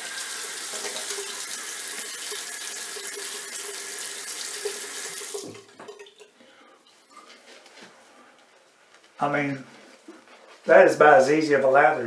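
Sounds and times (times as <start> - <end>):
sink tap running: 0.0 - 6.1
faint handling sounds: 6.7 - 11.4.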